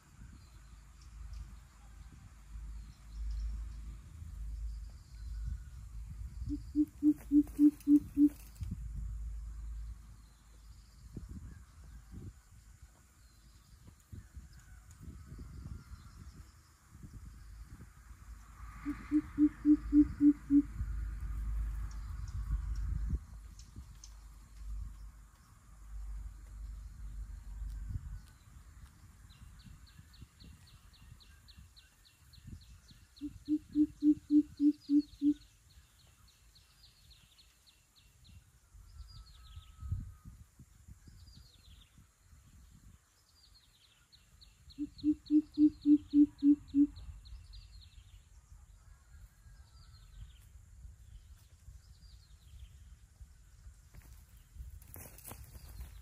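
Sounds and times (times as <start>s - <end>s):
small birds trilling: 4.4s - 8.8s.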